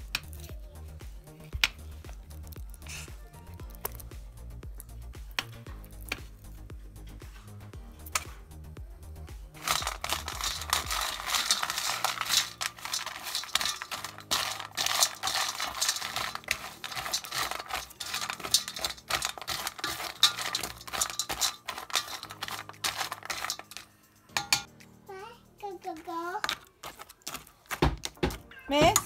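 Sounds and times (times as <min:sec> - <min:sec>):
kibble clattering in metal bowl: 0:09.6 - 0:24.7, 0:26.4 - 0:29.0
spoon scraping metal bowl: 0:09.6 - 0:24.7, 0:26.4 - 0:27.8.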